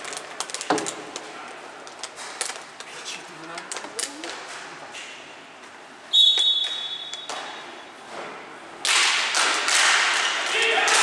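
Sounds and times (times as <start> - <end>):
shrill referee whistle blast: 6.1 - 7.4.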